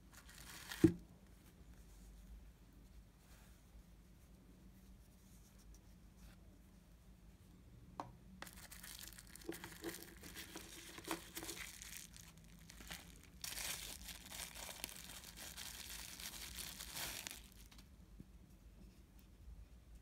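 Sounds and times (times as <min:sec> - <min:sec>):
bubble wrap crinkling: 0:00.1 - 0:00.9, 0:08.4 - 0:17.9.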